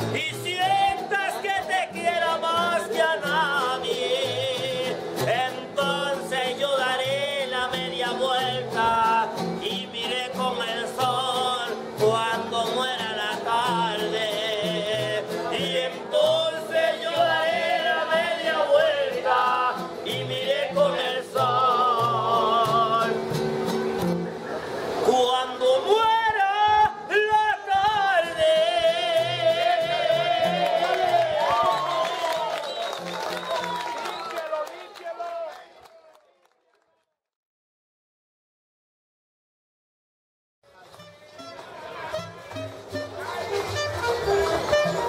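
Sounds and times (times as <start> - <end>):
man singing with vibrato: 0.0 - 23.4, 25.0 - 32.0.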